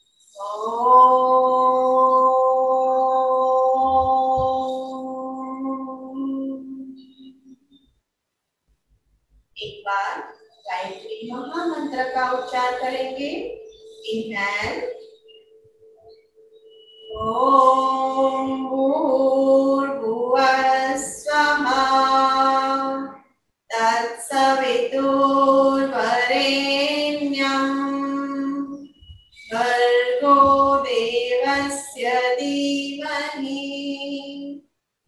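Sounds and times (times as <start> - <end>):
woman chanting: 0.3 - 7.6, 9.6 - 16.0, 16.7 - 34.6.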